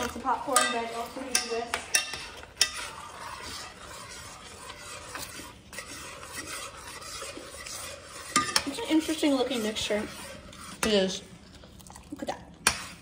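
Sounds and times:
stirring scraping in saucepan: 0.0s - 13.0s
utensil clinking against pan: 0.1s - 2.8s.

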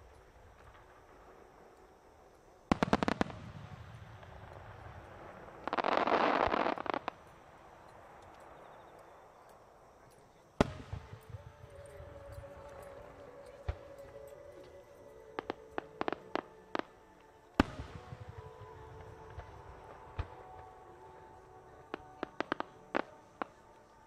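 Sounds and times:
firework dense crackling: 0.0s - 8.9s, 10.6s - 14.1s, 15.4s - 24.0s
small firework pops: 2.7s - 7.3s, 10.6s - 11.4s.

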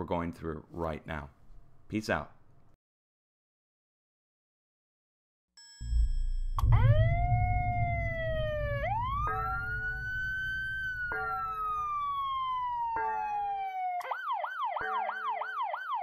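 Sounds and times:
bell-like tone: 5.6s - 12.0s
low rumble: 5.8s - 12.9s
electronic alert siren wailing: 5.8s - 16.0s.

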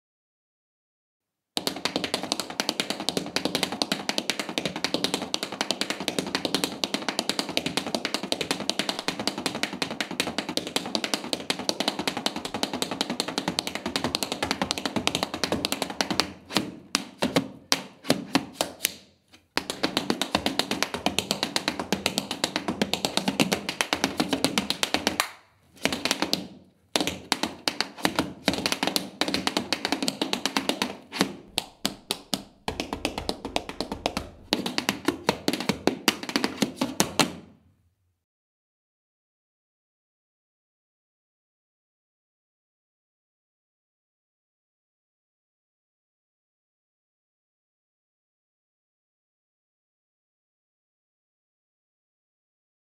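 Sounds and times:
tap shoes on wooden floor: 1.6s - 37.6s.

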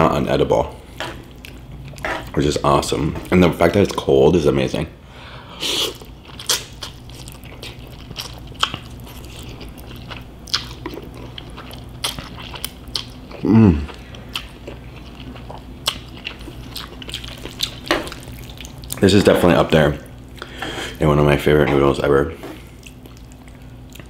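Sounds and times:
person slurping and chewing noodles: 5.6s - 19.0s
person humming: 13.4s - 13.9s.

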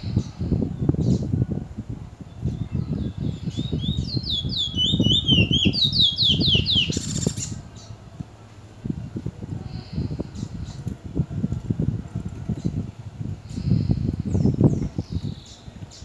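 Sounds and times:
bird whistled song with rasping rattle: 2.3s - 7.9s.

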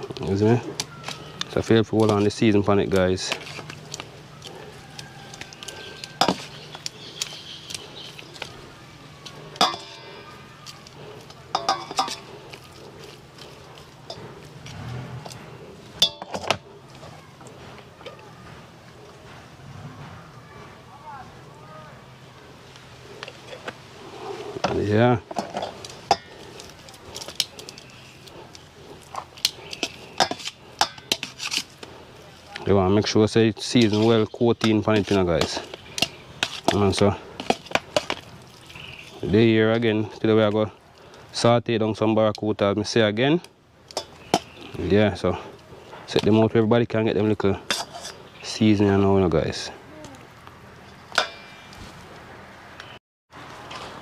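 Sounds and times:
metal tongs scraping steel bowl: 9.6s - 12.7s, 14.0s - 14.4s, 24.4s - 31.9s, 33.8s - 38.2s, 47.6s - 48.2s.

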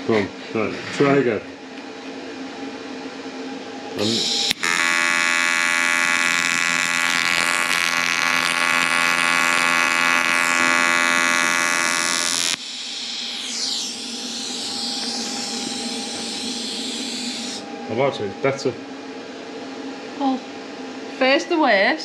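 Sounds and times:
faint steady hum: 0.1s - 22.0s
welding arc buzz: 4.0s - 17.6s.

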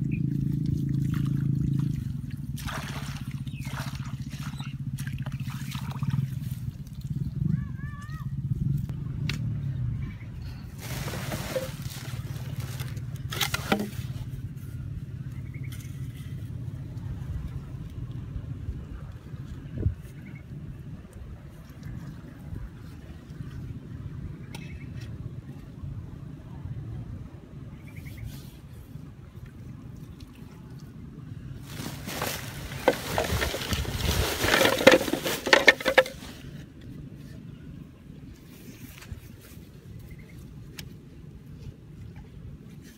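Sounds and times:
rustle: 10.7s - 14.9s, 31.6s - 37.4s
plastic pipe knocks and scrapes: 13.3s - 14.1s, 32.2s - 36.3s
bamboo tubes clicking: 34.5s - 36.2s.

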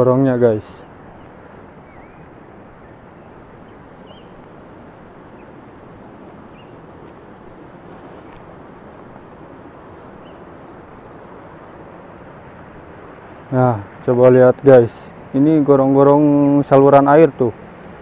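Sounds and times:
outdoor background rush: 0.0s - 18.0s
faint high bird chirps: 0.8s - 4.5s, 5.2s - 6.9s, 9.6s - 11.6s.

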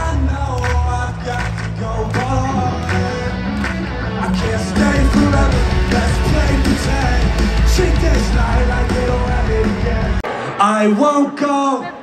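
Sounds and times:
live rock band music: 0.0s - 10.6s.

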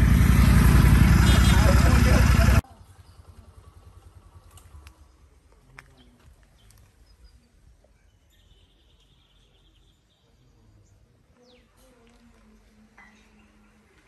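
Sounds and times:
bird chirps: 6.0s - 11.8s.

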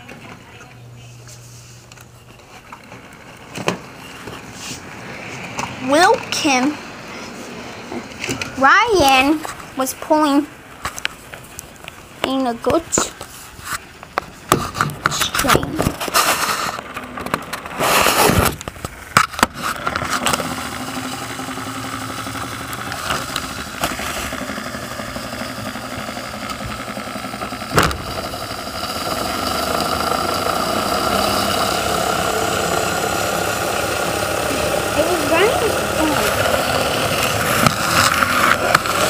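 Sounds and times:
toy train motor humming: 19.7s - 39.0s.

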